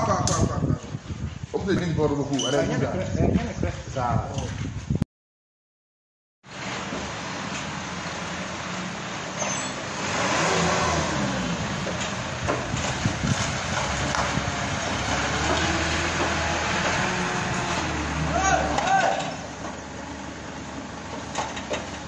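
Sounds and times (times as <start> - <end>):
truck engine running: 6.5 - 22.0.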